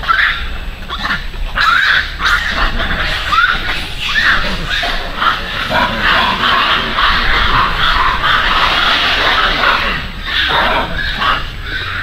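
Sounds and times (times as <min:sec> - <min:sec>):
macaques calling: 0:00.0 - 0:12.0.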